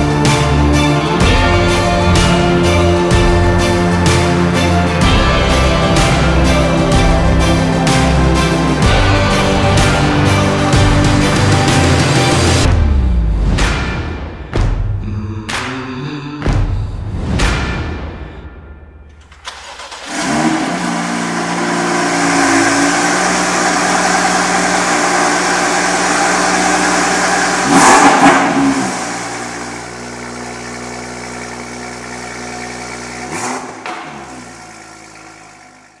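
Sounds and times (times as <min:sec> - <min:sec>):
car engine starting: 0:19.1 - 0:36.0
car engine fast idle: 0:19.2 - 0:36.0
engine revving: 0:19.2 - 0:36.0.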